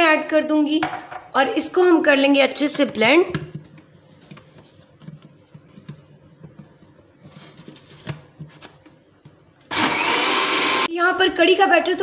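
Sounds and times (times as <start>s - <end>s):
blender motor whirring: 9.7s - 10.9s.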